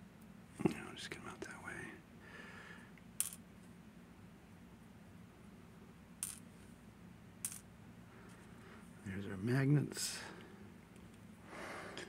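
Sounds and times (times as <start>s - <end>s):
faint low hum: 0.0s - 12.0s
small metal parts clicking: 3.2s - 3.4s, 6.2s - 6.5s, 7.4s - 7.7s.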